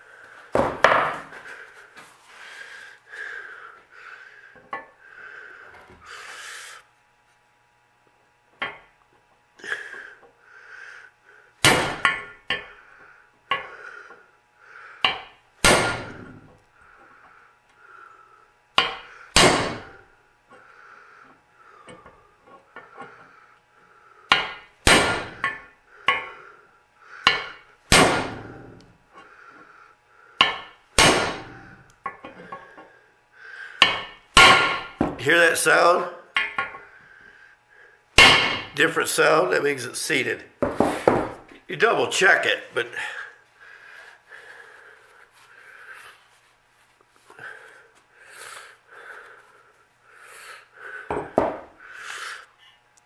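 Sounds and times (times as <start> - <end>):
hammer striking metal: 11.6 - 12.7, 15.0 - 16.4, 18.8 - 20.0, 24.3 - 26.3, 27.2 - 28.8, 30.4 - 31.7, 33.8 - 35.2, 38.2 - 38.8.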